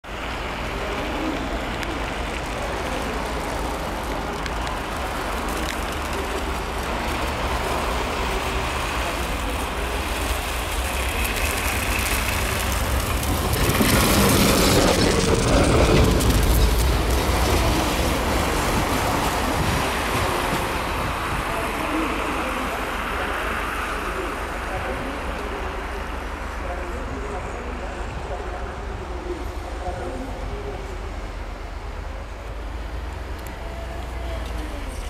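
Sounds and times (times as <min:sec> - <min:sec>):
tram rumbling past: 0:00.0 - 0:35.0
tram wheel noise on track: 0:00.0 - 0:35.0.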